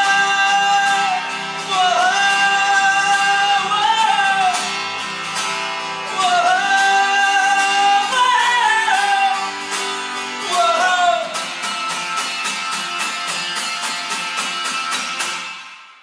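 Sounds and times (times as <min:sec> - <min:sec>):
man singing: 0:00.0 - 0:11.9
strummed acoustic guitar: 0:00.0 - 0:16.0.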